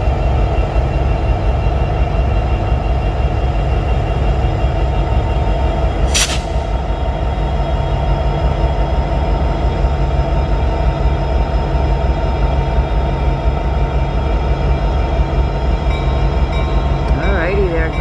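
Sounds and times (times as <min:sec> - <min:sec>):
diesel locomotive engine drone: 0:00.0 - 0:18.0.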